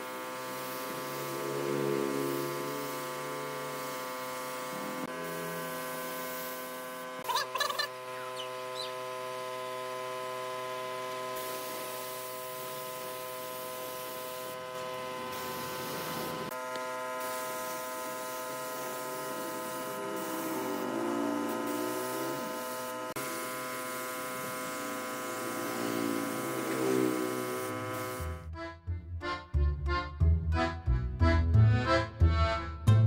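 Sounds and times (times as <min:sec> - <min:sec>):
spray gun hissing: 0:00.0 - 0:07.3, 0:11.3 - 0:16.6, 0:17.2 - 0:28.3
chicken clucking: 0:07.2 - 0:08.5.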